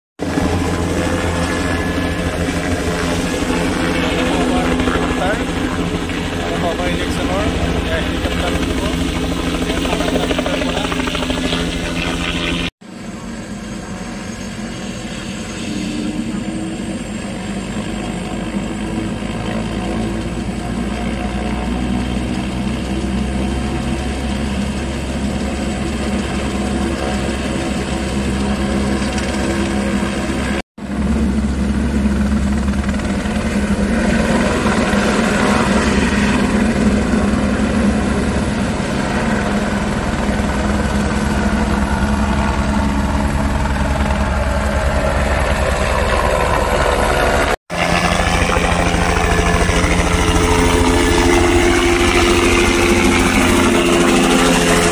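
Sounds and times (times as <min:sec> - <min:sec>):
helicopter turbine and rotor: 0:00.2 - 0:54.9.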